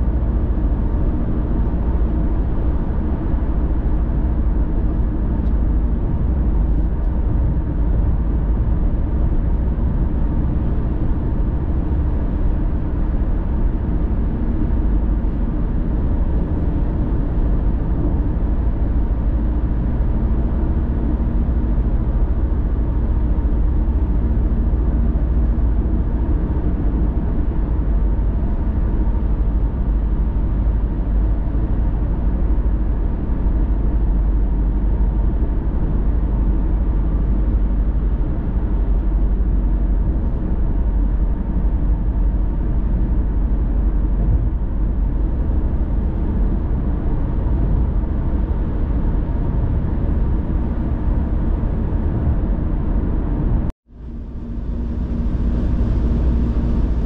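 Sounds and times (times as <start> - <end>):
car driving on highway: 0.0 - 57.0.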